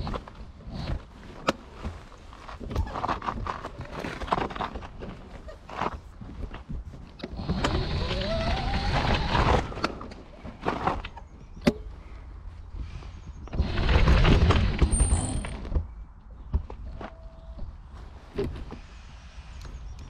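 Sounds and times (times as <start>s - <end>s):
mobility scooter rattling: 13.6s - 15.6s.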